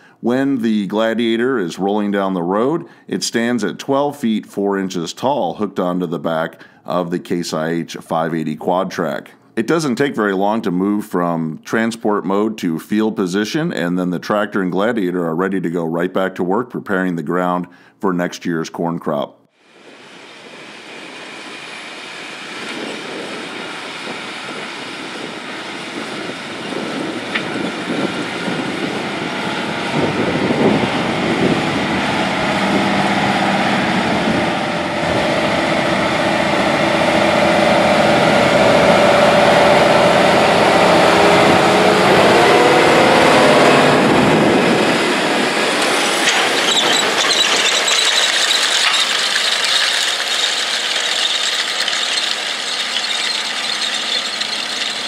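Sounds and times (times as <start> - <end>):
tractor diesel engine under load: 22.2 - 55.0
tillage shanks clattering in soil: 45.8 - 55.0.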